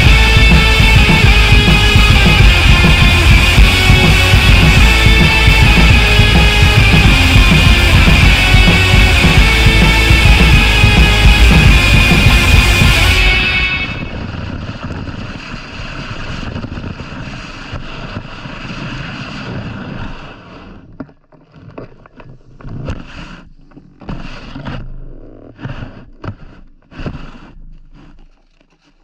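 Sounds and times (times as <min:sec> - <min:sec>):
wind on microphone: 0:00.0 - 0:20.8
snowboard scraping over snow: 0:00.0 - 0:20.9, 0:22.7 - 0:28.9.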